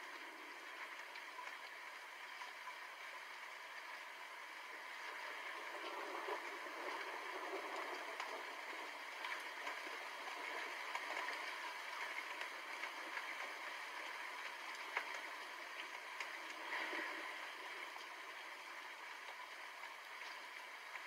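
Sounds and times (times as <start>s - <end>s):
steady rainfall: 0.0s - 21.0s.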